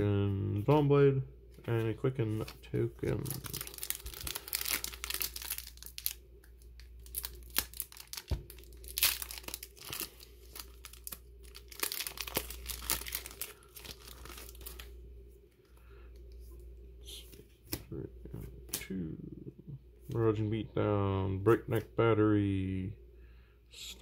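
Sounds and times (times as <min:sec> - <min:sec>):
foil wrapper tearing and crinkling: 0:03.0 - 0:14.9.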